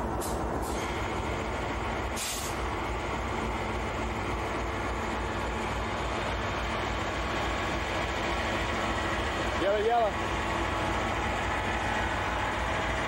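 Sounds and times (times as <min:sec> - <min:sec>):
diesel locomotives rumbling: 0:00.0 - 0:13.0
short hiss: 0:02.2 - 0:02.6.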